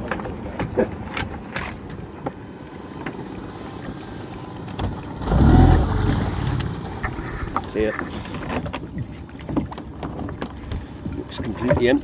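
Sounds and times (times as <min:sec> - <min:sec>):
water and boat noise: 0:00.0 - 0:12.0
low buffeting rumble: 0:02.5 - 0:12.0.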